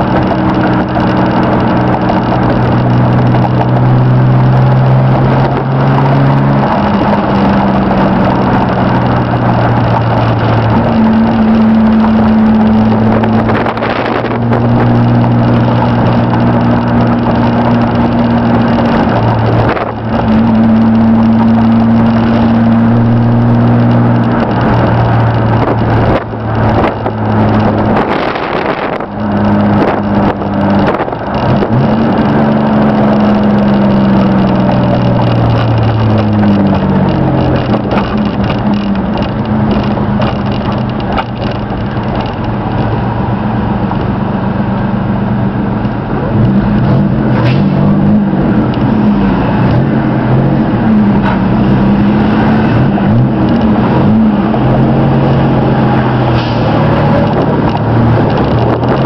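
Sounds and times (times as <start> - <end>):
engine knocks: 0.0 - 43.3, 46.6 - 59.0
pickup engine running: 0.0 - 59.0
road noise: 0.0 - 59.0.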